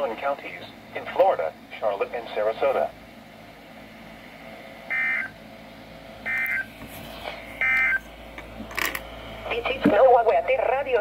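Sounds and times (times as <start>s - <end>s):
digital warbles from radio speaker: 4.9s - 5.4s, 6.3s - 6.7s.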